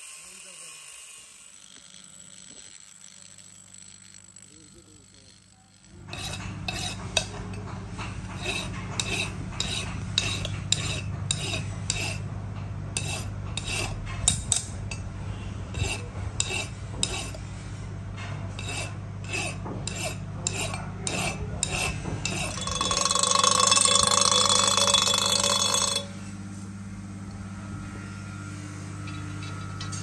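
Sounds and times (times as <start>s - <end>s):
steady low hum: 1.5s - 30.0s
metallic clinks and scrapes: 21.6s - 26.3s, 29.0s - 30.0s.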